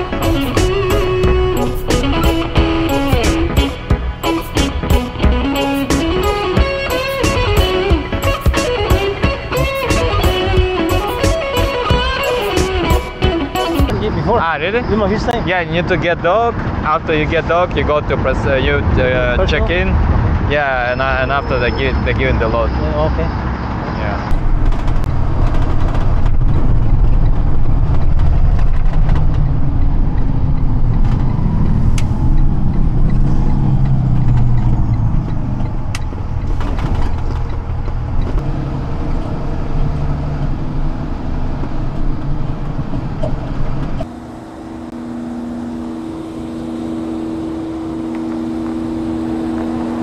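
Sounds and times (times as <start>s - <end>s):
truck engine and road rumble: 0.0s - 50.0s
steady hum with held tones: 44.0s - 50.0s.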